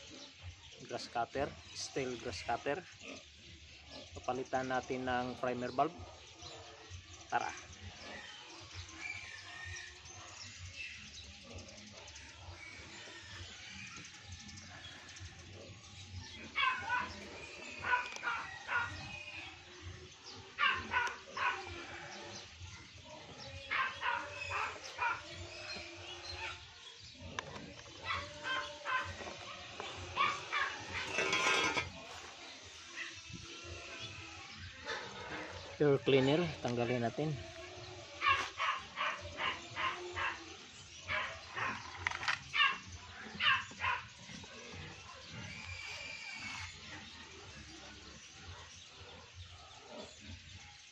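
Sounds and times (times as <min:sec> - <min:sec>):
dog barking: 0:16.6 - 0:17.2, 0:17.8 - 0:19.0, 0:20.6 - 0:21.8, 0:23.7 - 0:25.3, 0:28.0 - 0:29.6, 0:38.2 - 0:40.5, 0:41.1 - 0:41.8, 0:42.6 - 0:42.8, 0:43.4 - 0:44.1.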